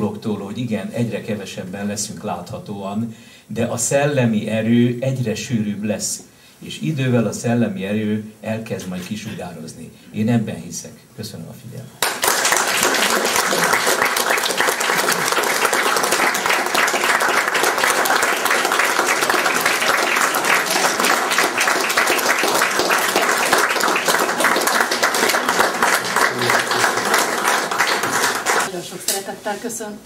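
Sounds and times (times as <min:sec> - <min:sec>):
audience applauding: 0:12.0 - 0:28.7.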